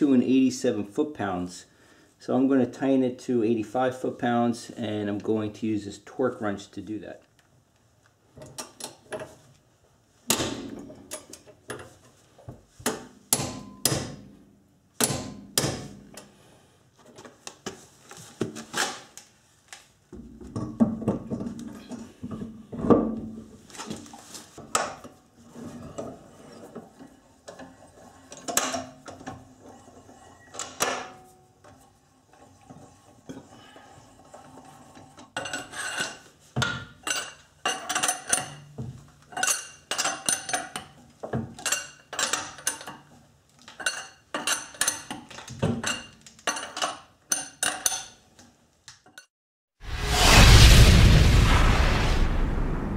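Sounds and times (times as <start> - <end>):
metal clanks and clicks from tools: 35.0 - 49.3.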